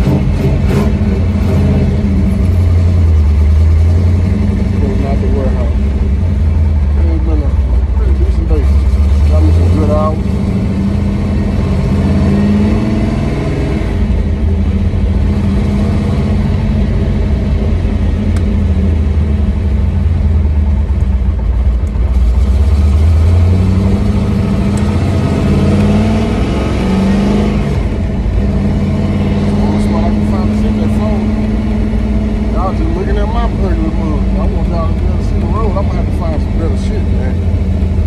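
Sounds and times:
car engine revving: 0:00.0 - 0:38.0.

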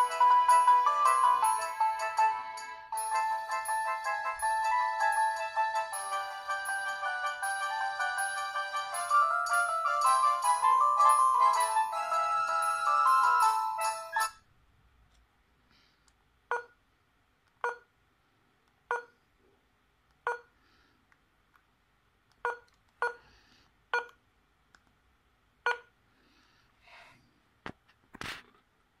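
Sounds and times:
phone keypad beeps: 0:16.5 - 0:16.8, 0:17.6 - 0:17.9, 0:18.9 - 0:19.1, 0:20.3 - 0:20.5, 0:22.4 - 0:23.2, 0:24.0 - 0:24.2, 0:25.7 - 0:25.9.

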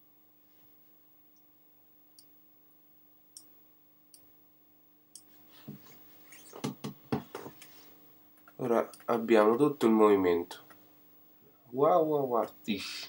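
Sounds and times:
knocks: 0:06.6 - 0:07.5.

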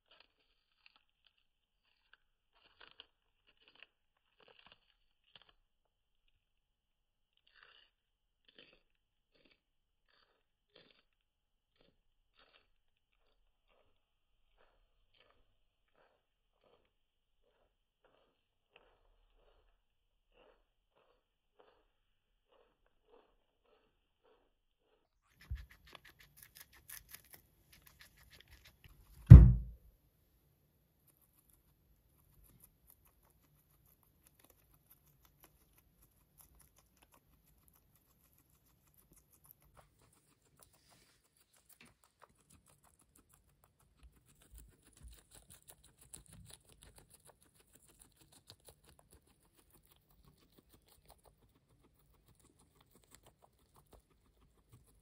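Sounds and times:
guinea pig chewing lettuce: 0:00.0 - 0:29.8, 0:30.7 - 0:55.0
heavy thump: 0:29.2 - 0:29.8.

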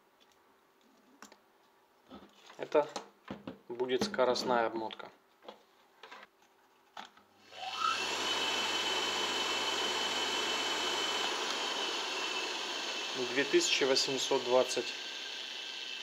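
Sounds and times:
motor whining and whirring: 0:07.5 - 0:16.0.

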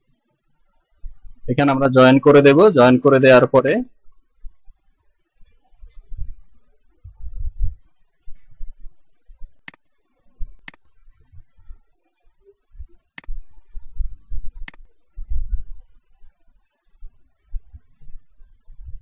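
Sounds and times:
dull low thumps: 0:07.0 - 0:07.8, 0:12.8 - 0:15.8
computer mouse clicks: 0:10.5 - 0:10.9, 0:13.2 - 0:13.5, 0:14.6 - 0:15.0.

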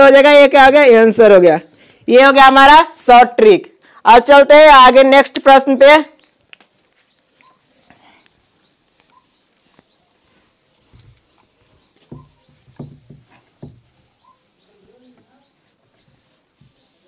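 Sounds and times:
faint high chirps: 0:07.1 - 0:10.5
cloth rubbing on whiteboard: 0:08.1 - 0:17.0.

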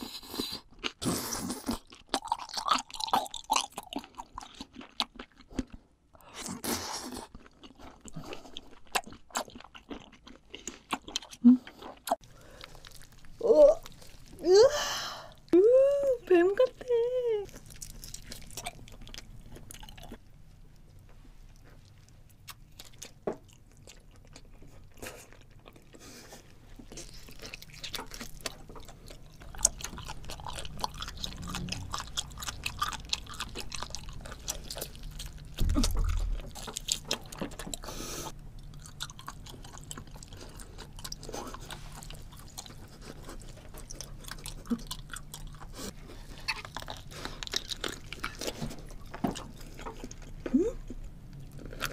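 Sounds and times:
low thump: 0:35.6 - 0:36.6.

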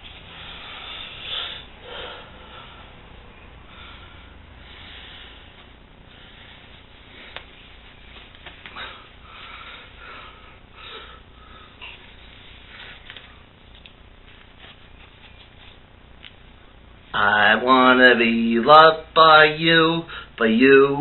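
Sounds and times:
room tone hiss: 0:00.0 - 0:21.0
breathing close to microphone: 0:00.2 - 0:07.6, 0:08.7 - 0:13.5
soft rustling: 0:05.5 - 0:09.0, 0:11.8 - 0:16.4.

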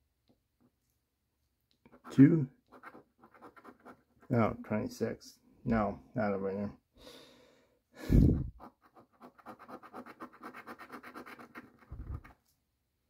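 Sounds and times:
coin scratching ticket: 0:01.9 - 0:04.4, 0:08.6 - 0:12.3.

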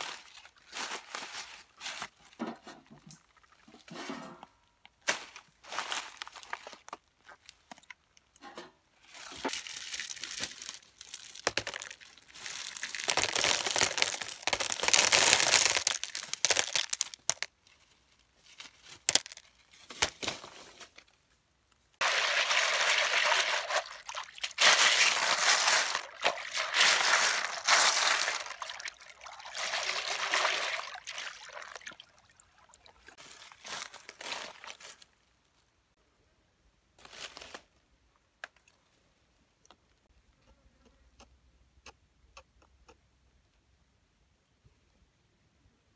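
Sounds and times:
shells clattering in plastic basket: 0:12.7 - 0:17.5.

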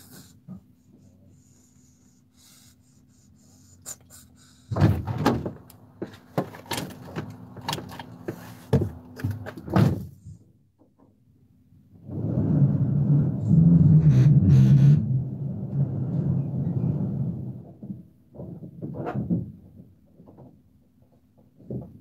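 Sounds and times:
knocks and clattering bangs: 0:04.7 - 0:10.1.

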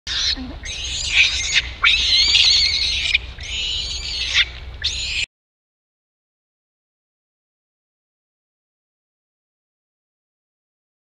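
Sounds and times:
infant monkey screaming: 0:00.1 - 0:05.3.

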